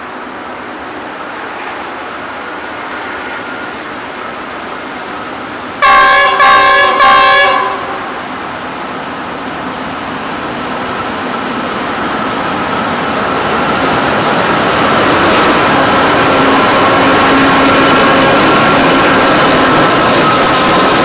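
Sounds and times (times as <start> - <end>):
train horn blasts: 5.8 - 8.2.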